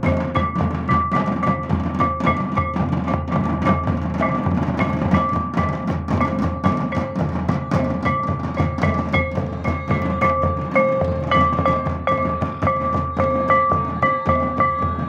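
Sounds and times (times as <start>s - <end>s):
drums beaten in fast rhythm: 0.0s - 15.0s
ringing high note: 8.0s - 15.0s.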